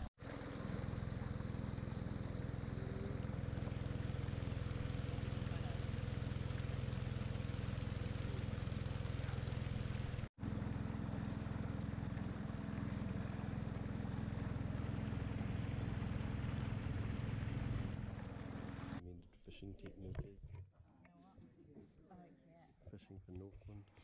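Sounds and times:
boat motor running: 0.0 - 19.0.

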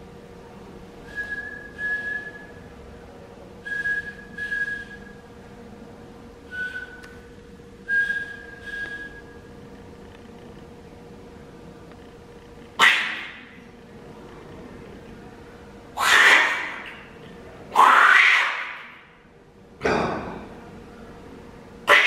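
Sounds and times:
person whistling high note: 1.1 - 2.6, 3.7 - 5.2, 6.5 - 7.2, 7.9 - 9.4.

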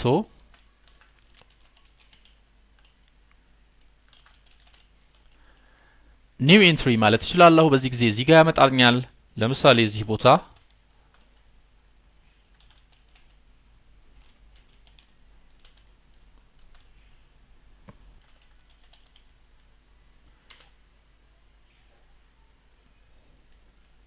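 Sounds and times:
keyboard typing: 0.4 - 3.2, 3.8 - 5.4, 10.5 - 11.5, 12.5 - 13.4, 14.2 - 17.0, 18.2 - 19.7, 20.4 - 20.8.

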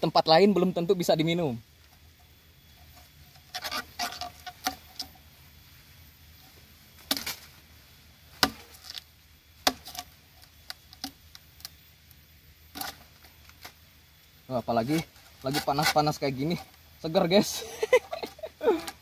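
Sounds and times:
machete chopping bamboo: 7.0 - 7.5, 8.3 - 9.0, 9.6 - 10.1.

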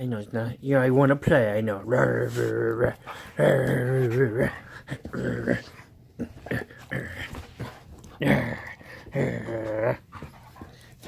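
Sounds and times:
dog grumbling: 1.8 - 10.7.

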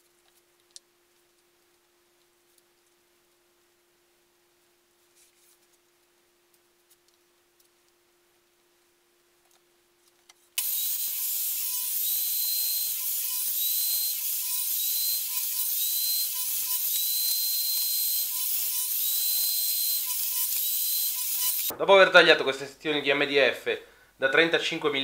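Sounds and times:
table saw cutting: 10.6 - 21.7.

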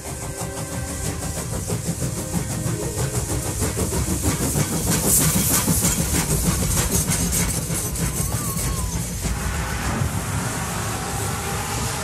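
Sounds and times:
train wheels clattering: 0.0 - 10.7
steam hiss: 0.0 - 12.0.

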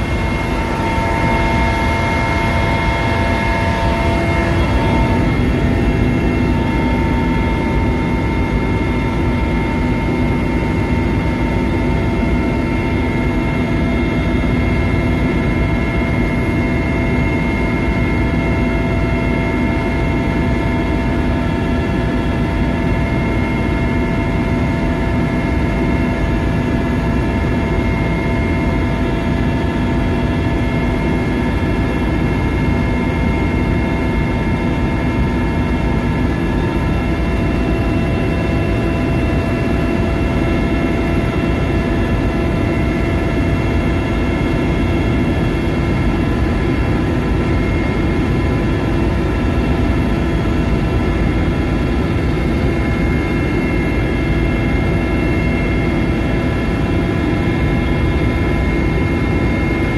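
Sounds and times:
whining tones: 0.0 - 9.8
helicopter engine and rotor drone: 0.0 - 59.9.

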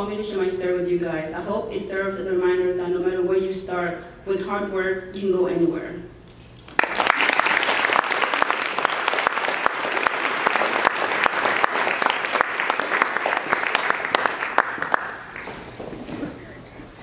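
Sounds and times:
audience applauding: 6.7 - 15.8.

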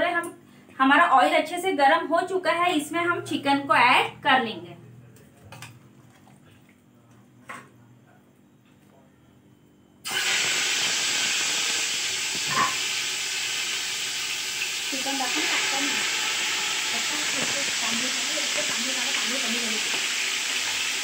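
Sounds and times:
chicken sizzling in hot oil: 10.0 - 21.0.

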